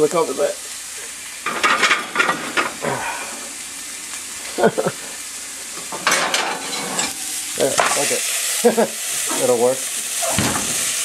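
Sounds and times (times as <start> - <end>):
food sizzling in a pan: 0.0 - 11.0
pan cover clattering: 5.9 - 7.1.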